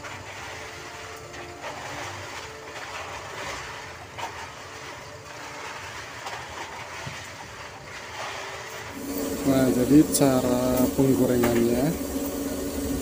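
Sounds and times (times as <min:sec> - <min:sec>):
oil sizzling and bubbling: 0:00.0 - 0:13.0
wire strainer scraping wok: 0:00.0 - 0:13.0.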